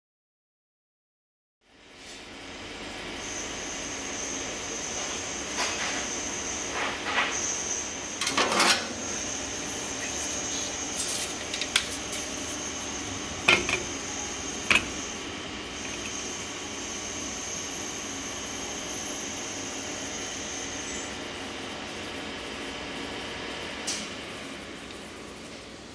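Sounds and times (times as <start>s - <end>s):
steady hiss with high whine: 3.2s - 23.4s.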